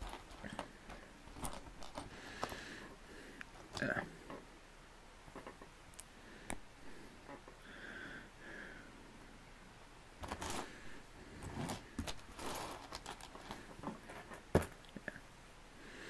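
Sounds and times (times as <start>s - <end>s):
plastic bag rustling: 11.5s - 14.6s.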